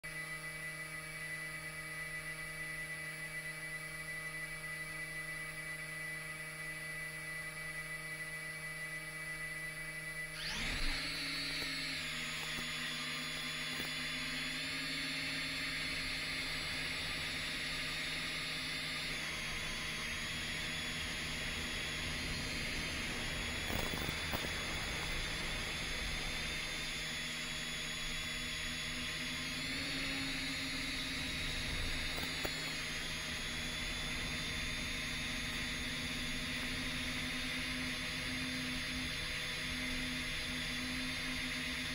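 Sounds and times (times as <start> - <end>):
quadcopter motors whining: 0.1 - 41.9
propellers whirring: 10.4 - 41.7.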